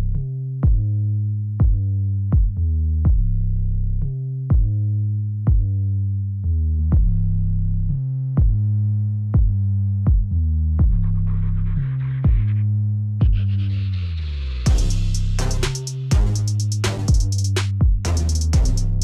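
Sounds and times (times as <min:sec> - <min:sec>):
low synthesizer bass: 0:00.0 - 0:19.0
drum machine hits: 0:14.7 - 0:19.0.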